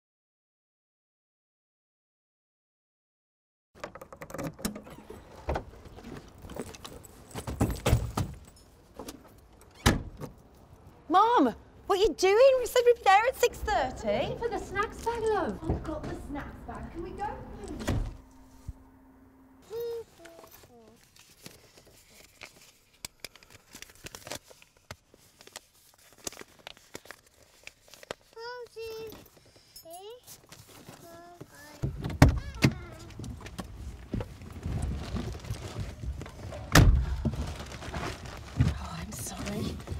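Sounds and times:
soft rustling: 19.9 - 31.8
bags rustling: 33.9 - 39.9.

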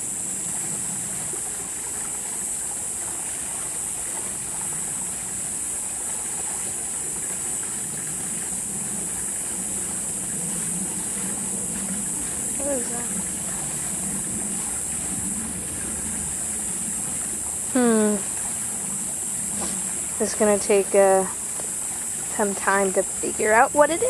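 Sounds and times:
low hum: 7.7 - 24.0
high-pitched hiss: 17.5 - 18.4.

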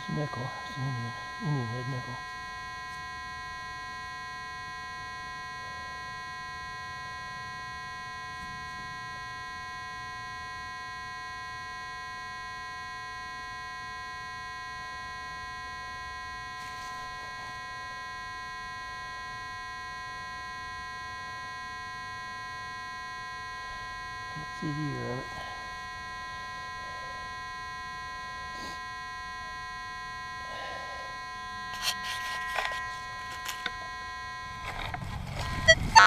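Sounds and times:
steady electronic buzz: 0.0 - 36.0.

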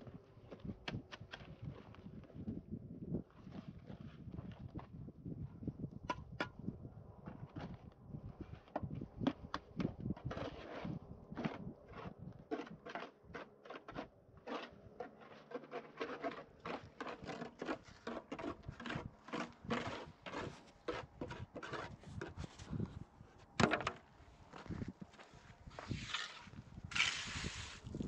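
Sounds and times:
irregular scrapes and knocks: 8.4 - 28.0.

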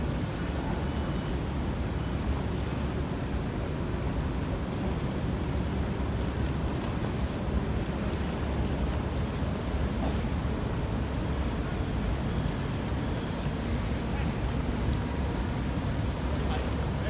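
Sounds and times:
wind and water rumble: 0.0 - 17.0.

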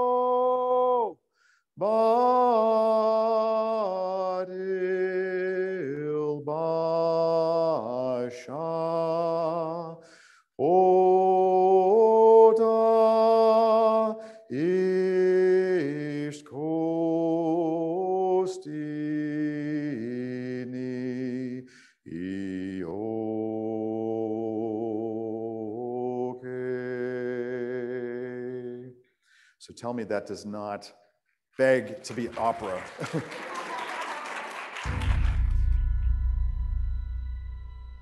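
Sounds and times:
man singing a hymn unaccompanied: 0.0 - 1.2, 1.8 - 29.0.

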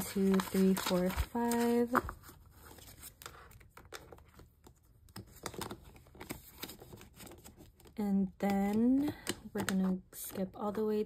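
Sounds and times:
paper money rustling: 0.0 - 3.5.

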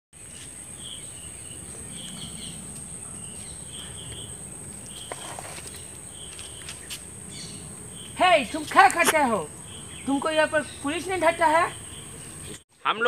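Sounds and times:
short insect chirps: 0.2 - 10.2.

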